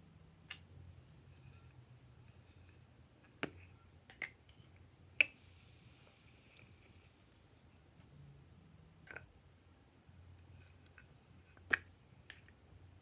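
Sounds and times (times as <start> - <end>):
foam beads pouring into dish: 5.4 - 7.6.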